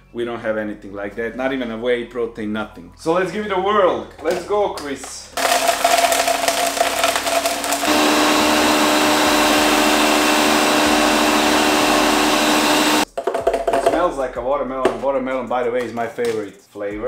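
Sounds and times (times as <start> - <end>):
blender crushing ice: 5.4 - 13.0.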